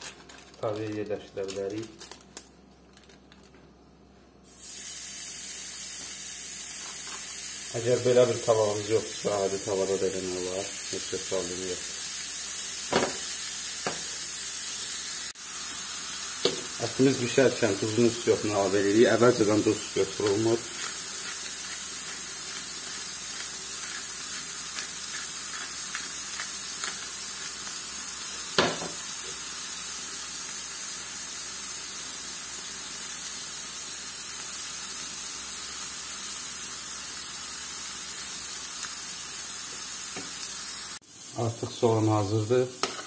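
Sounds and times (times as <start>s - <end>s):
burger patties sizzling: 0.0s - 2.2s, 4.4s - 43.0s.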